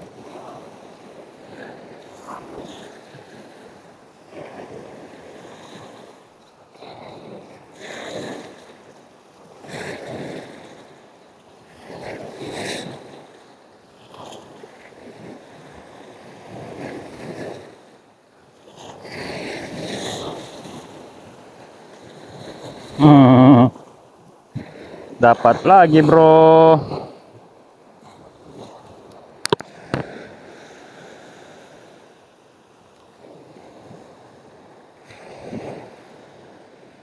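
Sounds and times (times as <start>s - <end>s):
small waves breaking on sand: 0.0s - 37.0s
loud short voice: 23.0s - 23.7s, 25.2s - 26.9s.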